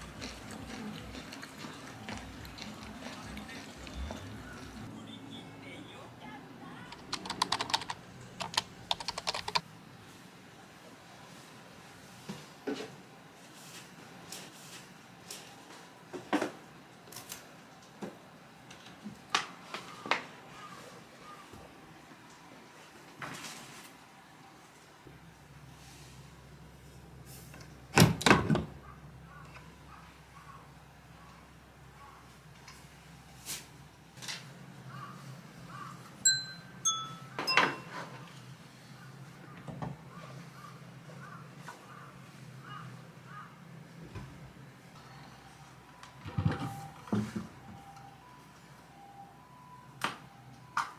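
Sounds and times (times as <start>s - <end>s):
short bright pings: 36.3s - 38.0s.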